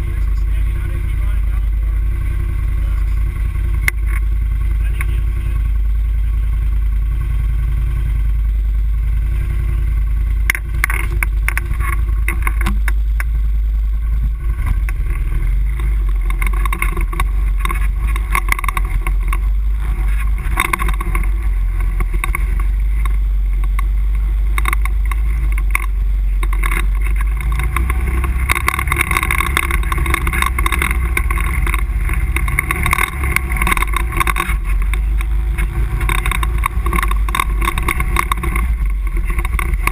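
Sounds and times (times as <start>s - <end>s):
quad engine running: 0.0s - 39.9s
knocks and rattles: 10.4s - 13.4s, 14.4s - 39.9s.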